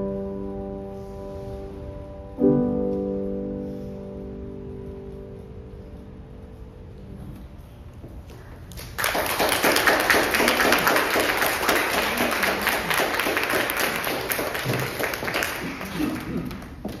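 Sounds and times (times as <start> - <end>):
applause: 8.7 - 17.0.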